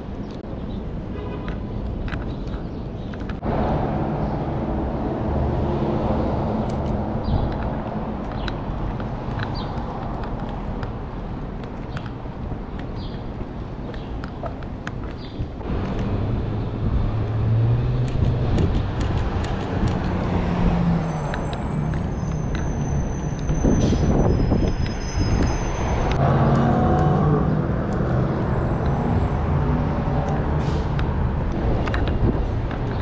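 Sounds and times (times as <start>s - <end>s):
street traffic engines: 0.0s - 33.0s
high brake squeal: 21.0s - 26.2s
air brake hiss: 30.6s - 30.9s.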